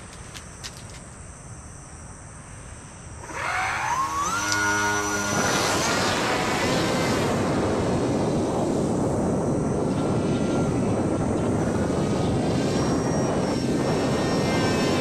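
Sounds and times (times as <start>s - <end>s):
electric motor whine: 3.0s - 15.0s
rushing air noise: 4.2s - 15.0s.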